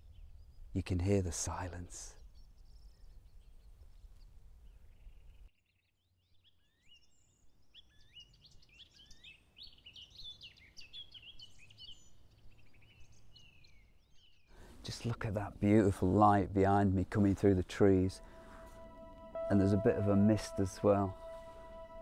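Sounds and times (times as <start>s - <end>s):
songbirds chirping and whistling: 2.2s - 5.5s, 6.3s - 14.6s.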